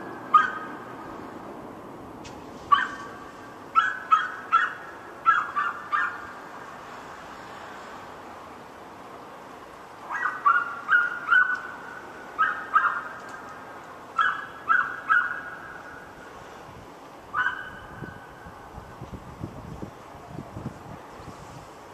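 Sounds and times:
dog barking: 0.3 - 0.7, 2.7 - 3.1, 3.8 - 6.2, 10.1 - 11.6, 12.4 - 13.1, 14.2 - 15.6, 17.4 - 17.8.

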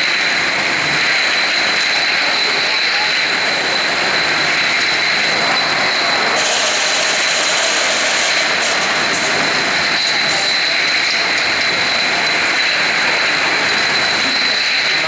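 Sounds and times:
machine hiss and whine: 0.0 - 15.0.

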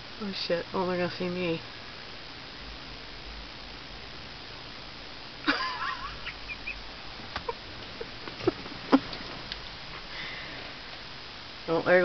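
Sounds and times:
background hum: 0.0 - 12.0
person laughing wheezily: 5.5 - 6.8.

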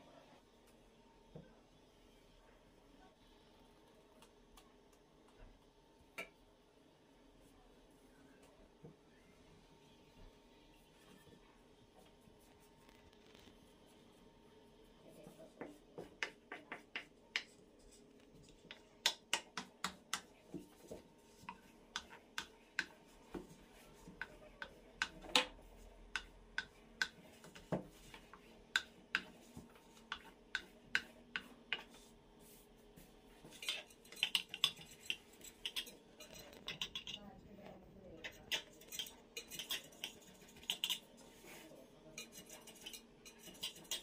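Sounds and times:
utensil tapping a dish: 15.6 - 17.6, 18.6 - 23.6, 26.1 - 32.0, 33.5 - 37.2.

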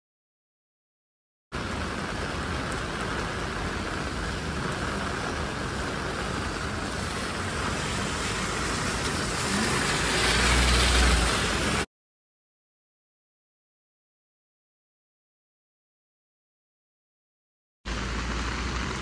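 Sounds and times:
heavy rain on street: 1.5 - 11.9, 17.9 - 19.0
car passing on wet road: 1.6 - 11.9, 17.9 - 19.0
traffic on wet road: 1.6 - 11.9, 17.9 - 19.0.

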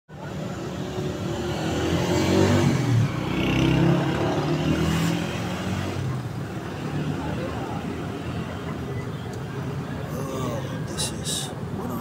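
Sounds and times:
vehicle engine revving: 1.2 - 6.2.

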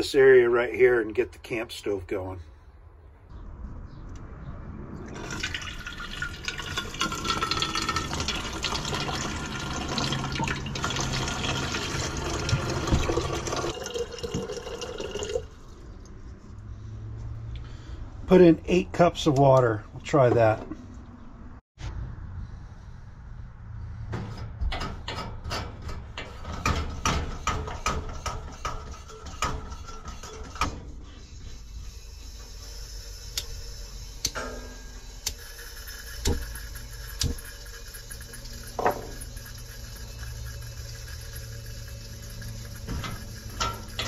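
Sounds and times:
stove burner hissing: 27.0 - 44.0
stove pump clicking: 34.2 - 34.6, 35.2 - 39.6
valve clicks and knocks: 36.2 - 39.4.

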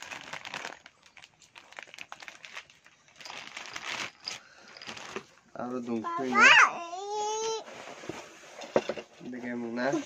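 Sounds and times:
plastic bag crinkling: 0.0 - 5.8.

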